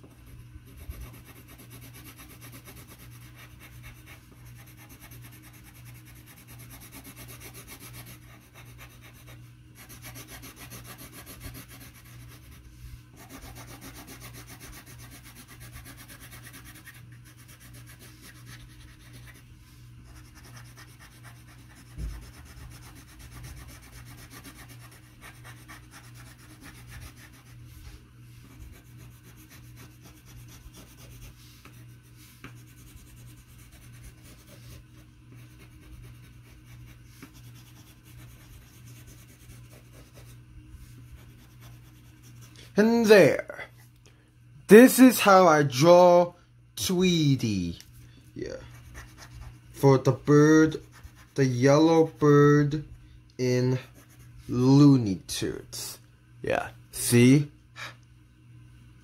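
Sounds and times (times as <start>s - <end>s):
low steady hum: 0.0s - 59.0s
pencil scratching on paper: 0.7s - 42.6s, 48.6s - 52.4s, 53.4s - 54.6s
thump: 22.0s - 22.2s.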